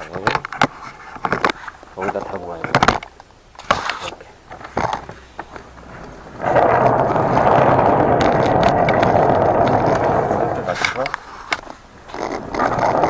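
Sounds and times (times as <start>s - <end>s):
clacks and knocks: 0.1s - 13.0s
hand cart rolling on concrete: 3.9s - 13.0s.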